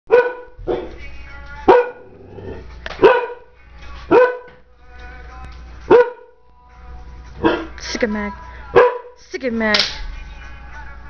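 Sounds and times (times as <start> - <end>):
dog barking: 0.1 - 1.0, 1.7 - 2.1, 3.0 - 3.5, 4.1 - 4.5, 5.9 - 6.3, 7.4 - 7.8, 8.7 - 9.2.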